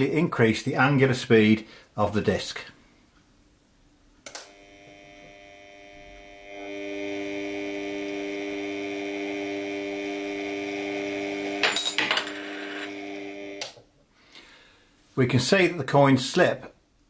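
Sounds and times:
turntable motor humming: 4.3 - 11.6, 12.4 - 13.7
coins clattering: 11.6 - 12.9.

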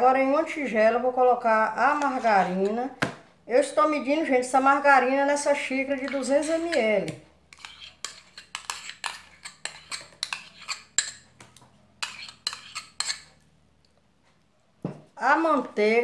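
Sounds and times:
metal spoon scraping a cup: 6.0 - 6.9, 7.5 - 11.3, 12.0 - 13.4.

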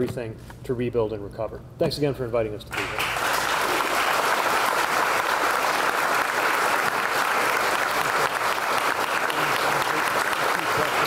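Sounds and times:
crowd applauding: 2.7 - 11.0.

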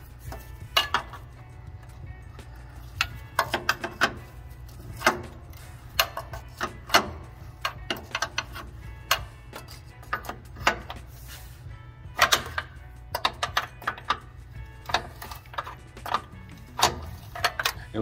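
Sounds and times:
wrench clicking on metal fittings: 2.8 - 4.3, 4.9 - 11.0, 12.2 - 17.8.

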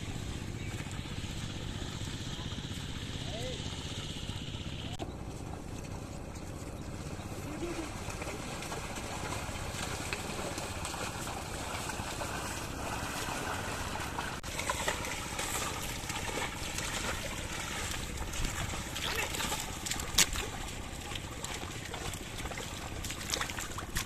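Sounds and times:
muddy water sloshing and splashing: 0.0 - 24.0
steady low rumble: 0.0 - 24.0.

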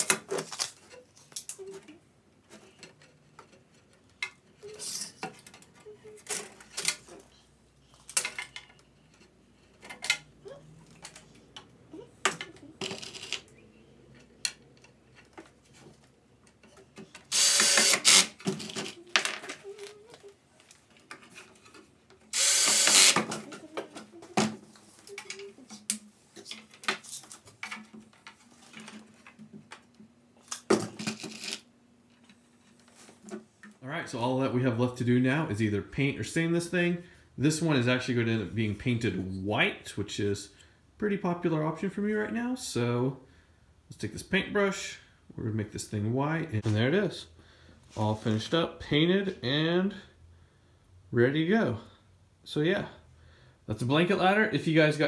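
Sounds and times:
rasping bursts: 17.3 - 18.4, 22.3 - 23.3.

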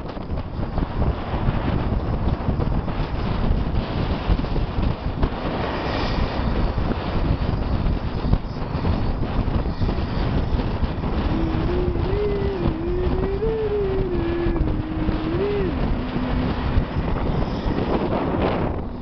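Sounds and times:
wind buffeting microphone: 0.0 - 19.0
truck and road rumble: 2.9 - 19.0
person humming a tune: 11.1 - 17.8.

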